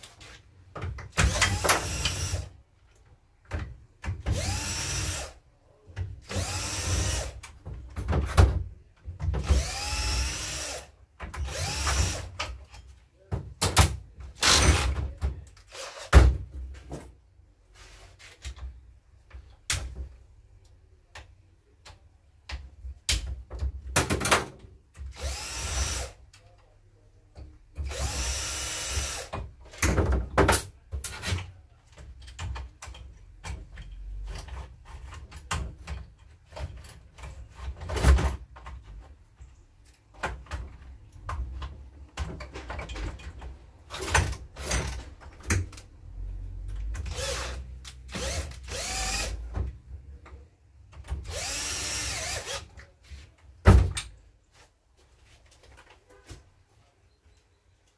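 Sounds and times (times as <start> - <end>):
small power tool running: 51.3 - 52.6.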